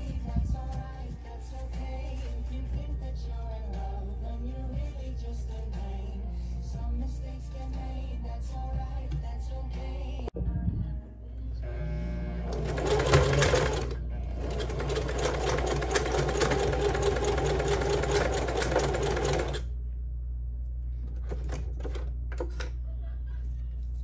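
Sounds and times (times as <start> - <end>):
sewing machine stitching: 12.5 - 19.7.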